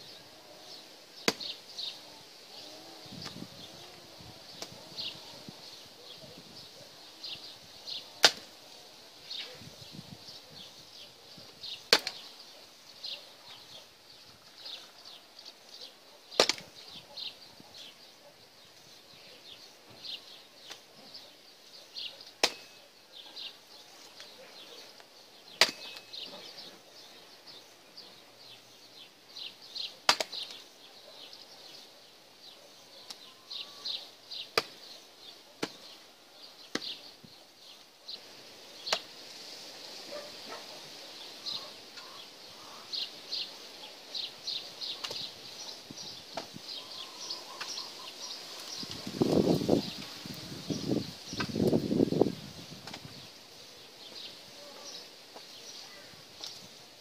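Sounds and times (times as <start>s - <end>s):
hatchet chopping firewood: 1.2s - 1.5s, 8.2s - 8.5s, 11.9s - 12.2s, 16.4s - 16.7s, 22.4s - 22.8s, 25.6s - 26.1s, 30.1s - 30.5s, 34.6s - 34.8s.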